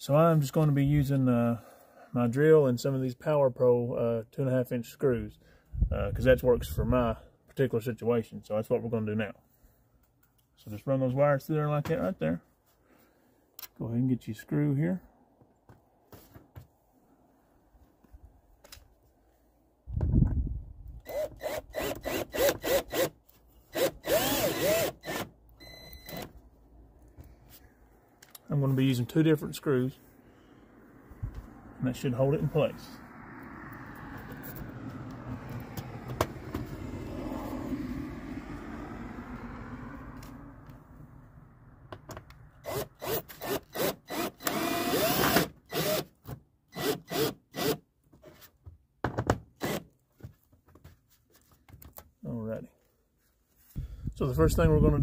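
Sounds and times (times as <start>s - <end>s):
cordless drill driving screw: 21.0s - 26.3s, 42.6s - 47.8s, 49.6s - 49.9s.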